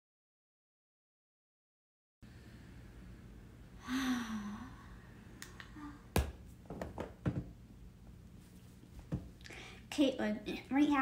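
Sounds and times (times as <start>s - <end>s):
woman sighing: 3.8s - 5.0s.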